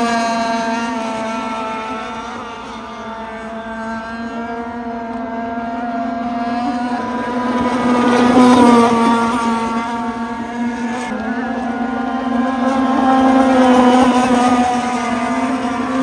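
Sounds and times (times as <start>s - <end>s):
power boat engine at speed: 0.0s - 16.0s.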